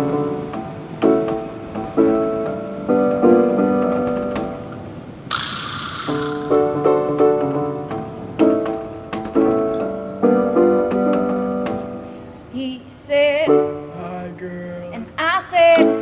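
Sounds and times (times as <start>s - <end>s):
piano chords: 0.0s - 16.0s
woman singing: 12.5s - 13.7s, 15.0s - 16.0s.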